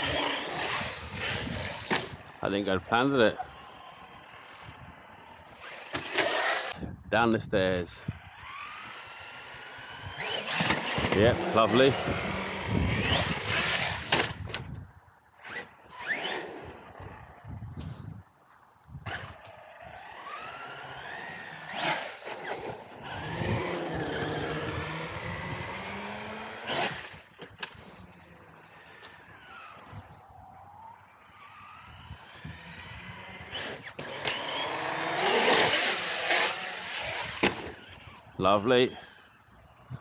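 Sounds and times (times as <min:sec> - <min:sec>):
electric motor whining: 0:00.0 - 0:02.4, 0:08.1 - 0:14.6, 0:19.1 - 0:39.6.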